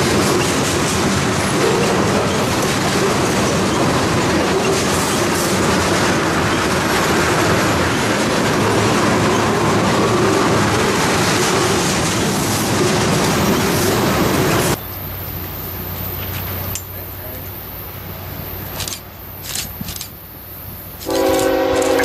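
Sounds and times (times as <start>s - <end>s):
wheels clacking over rail joints: 0.0s - 15.0s
steel wheels on rail: 0.0s - 22.0s.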